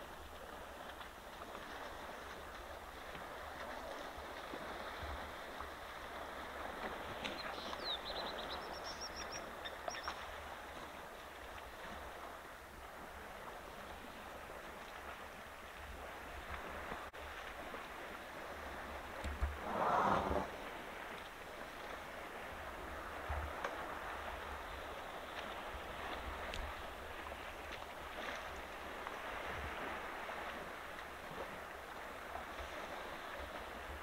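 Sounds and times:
water sloshing and splashing: 9.2 - 34.0.

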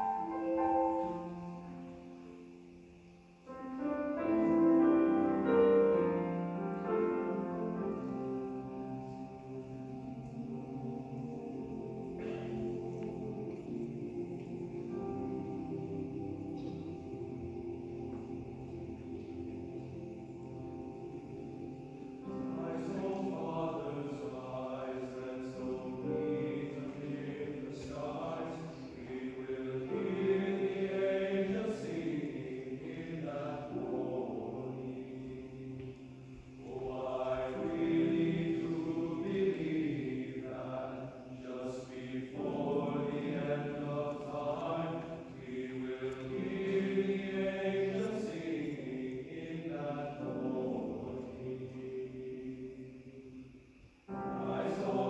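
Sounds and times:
men's choir singing: 0.0 - 2.2, 3.8 - 55.0.

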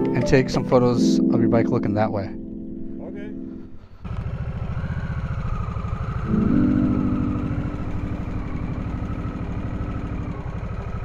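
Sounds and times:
motorcycle engine pulling away: 3.8 - 11.0.

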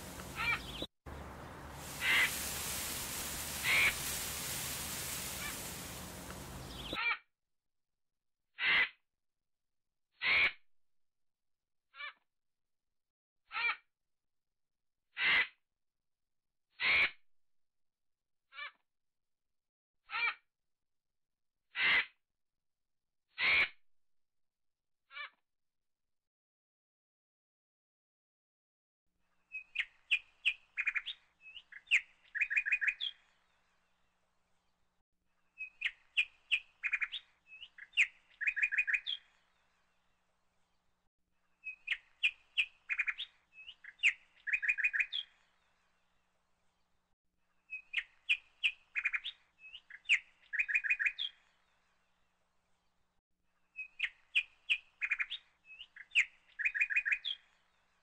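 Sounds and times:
bird chirps and trills: 0.0 - 7.0, 29.5 - 33.3, 35.6 - 39.4, 41.6 - 45.5, 47.7 - 51.4, 53.7 - 57.6.

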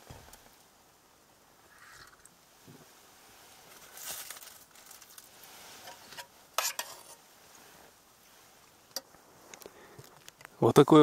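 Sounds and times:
quiet rustling: 2.0 - 11.0
clatters of food and utensils: 5.8 - 7.2.

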